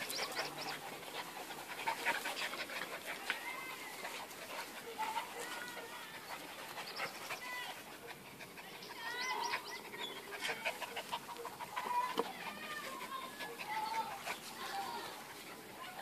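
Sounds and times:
puppies whining and yelping: 0.0s - 7.3s.

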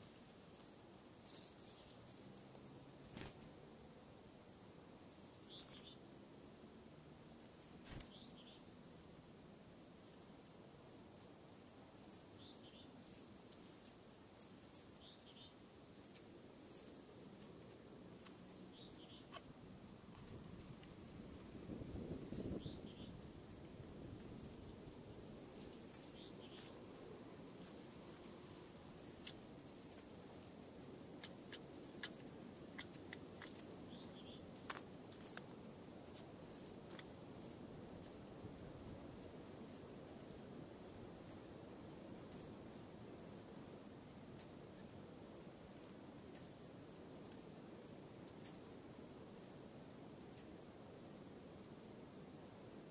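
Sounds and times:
songbird call: 22.1s - 23.2s, 24.9s - 27.6s, 33.1s - 34.4s
soft ticks: 46.3s - 46.5s, 50.3s - 50.5s.

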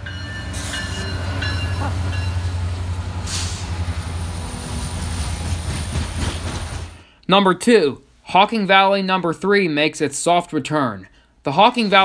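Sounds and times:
diesel locomotive engine drone: 0.0s - 7.0s
rail and wheel noise: 0.0s - 7.0s.

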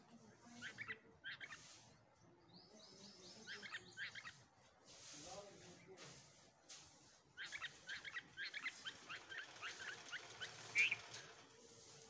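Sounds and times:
nestlings begging with high chirps: 0.3s - 4.5s, 7.2s - 11.5s.

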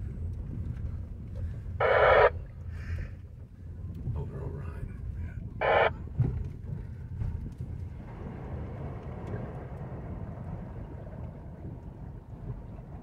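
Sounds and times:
tyres rumbling in water: 5.4s - 13.0s.

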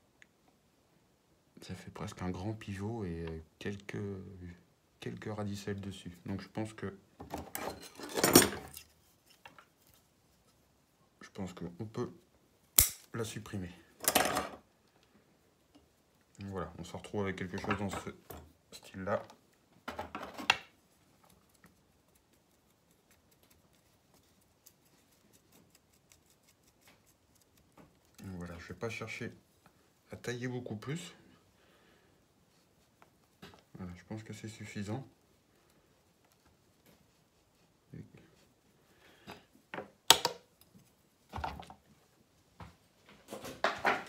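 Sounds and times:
handling rustle: 7.4s - 10.8s.

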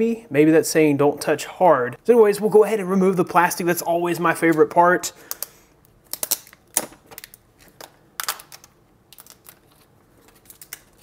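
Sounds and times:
plastic film crinkling: 6.1s - 11.0s.

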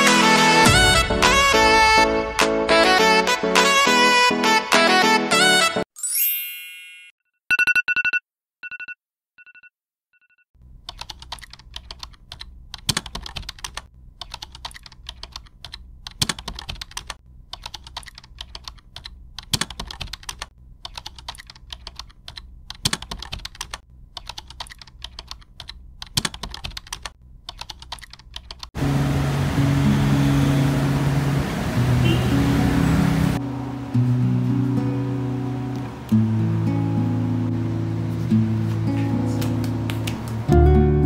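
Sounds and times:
keyboard key clicks: 10.9s - 28.7s.

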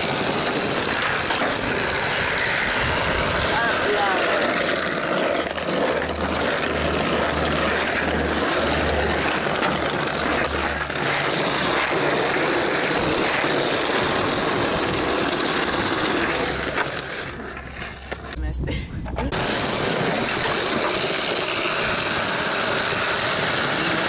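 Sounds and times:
skateboard wheels rolling on bricks: 0.0s - 18.4s, 19.0s - 24.0s.

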